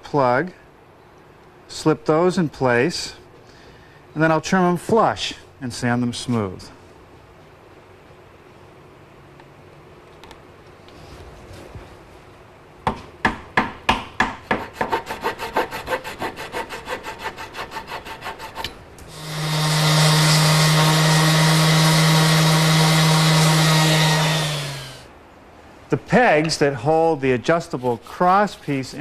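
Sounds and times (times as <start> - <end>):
handsaw strokes: 14.5 - 25.1, 27.5 - 29.0
electric sander humming: 19.1 - 25.1.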